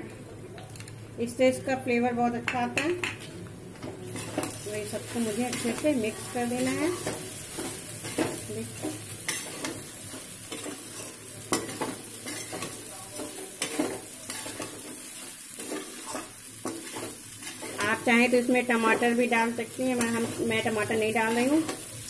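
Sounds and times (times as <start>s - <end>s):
light frying sizzle: 0.0s - 22.0s
metal spoon scraping a pan: 4.2s - 18.1s.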